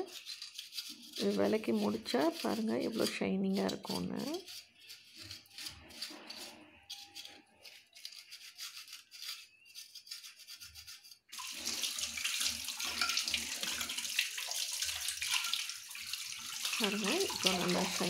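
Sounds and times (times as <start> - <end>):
scrub pad scouring metal: 0.0 - 18.0
tap water running: 11.3 - 18.0.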